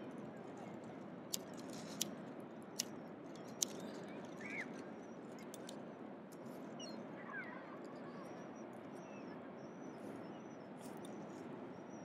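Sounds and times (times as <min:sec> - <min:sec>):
sharp clicks: 0:01.3 - 0:04.0.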